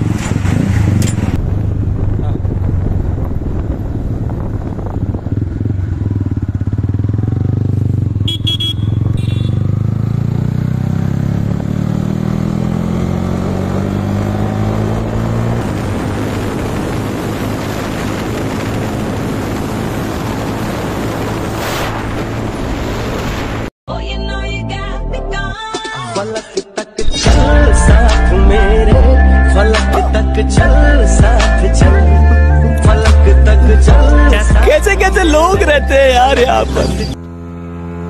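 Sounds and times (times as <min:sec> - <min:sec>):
motorcycle engine accelerating: 0:00.0 - 0:23.7, 0:33.0 - 0:38.0
wind and road noise: 0:00.0 - 0:23.7.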